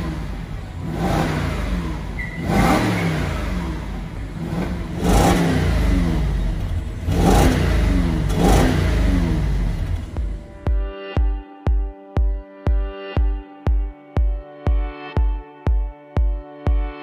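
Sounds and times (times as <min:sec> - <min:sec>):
car engine revving: 0:00.0 - 0:10.6.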